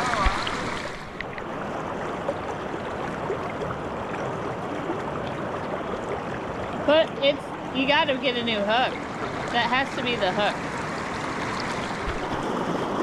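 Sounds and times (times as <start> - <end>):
river water rushing: 0.0 - 13.0.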